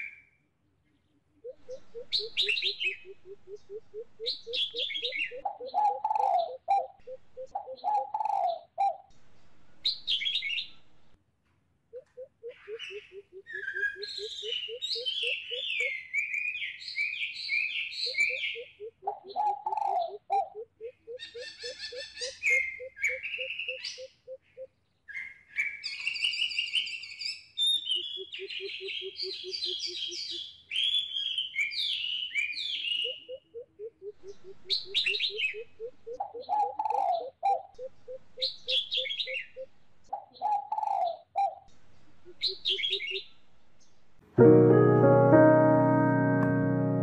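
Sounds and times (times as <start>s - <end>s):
high bird chirping and warbling: 1.4s - 8.7s, 9.8s - 10.9s, 12.0s - 24.7s, 34.1s - 41.6s, 42.2s - 43.9s
low pulsed bird notes: 1.5s - 8.1s, 34.1s - 36.6s
piano music: 44.3s - 47.0s.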